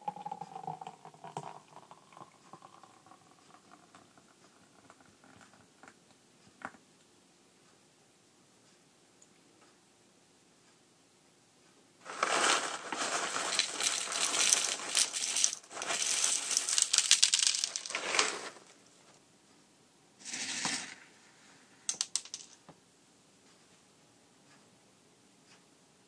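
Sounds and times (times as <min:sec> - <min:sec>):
puffed cereal pouring into a glass: 0:00.0 - 0:02.4, 0:12.1 - 0:18.7, 0:20.2 - 0:21.1.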